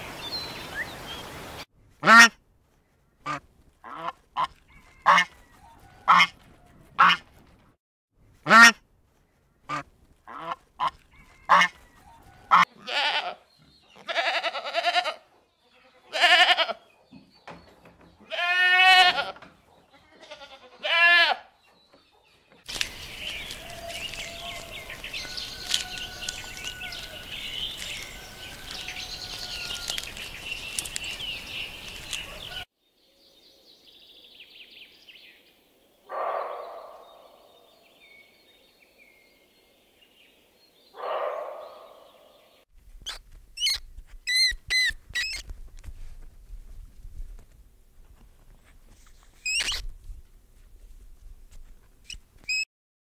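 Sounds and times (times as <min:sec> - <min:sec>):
flock of birds chirping: 0:21.6 - 0:42.7
sharp high squeaks: 0:43.0 - 0:45.5, 0:49.4 - 0:49.9, 0:52.0 - 0:52.7.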